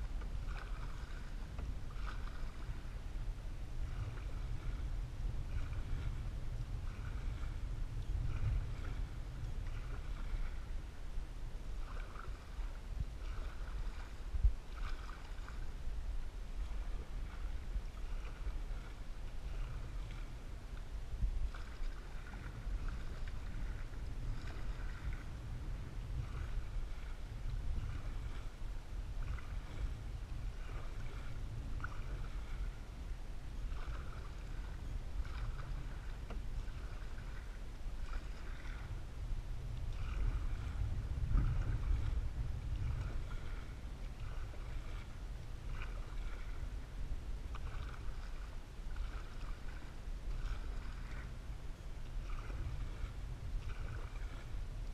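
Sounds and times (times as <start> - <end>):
low rumble: 0.0 - 48.6
paddle splashing in water: 0.0 - 54.9.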